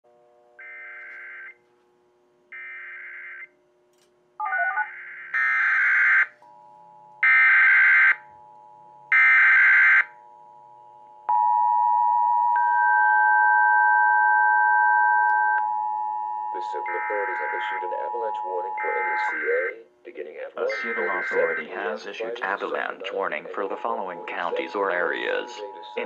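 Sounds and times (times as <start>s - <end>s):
two-tone attention signal: 20.6s - 22.6s
screeching digital data bursts: 20.6s - 22.9s.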